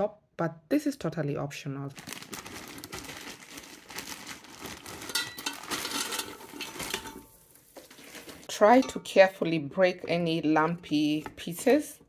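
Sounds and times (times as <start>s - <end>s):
frozen fries clattering into metal basket: 2.9s - 9.0s.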